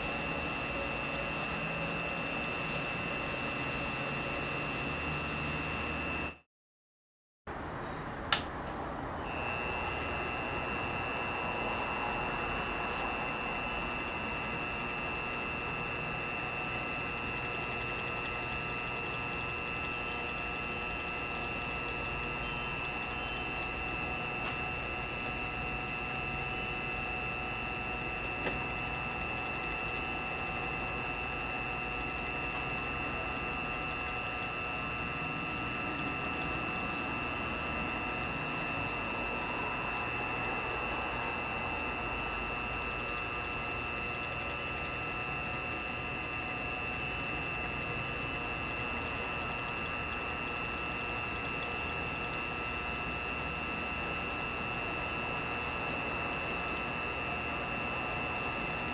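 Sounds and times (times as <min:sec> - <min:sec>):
lathe motor hum and whine: 0:00.0 - 0:06.4, 0:09.2 - 0:58.9
small click: 0:08.3 - 0:08.8.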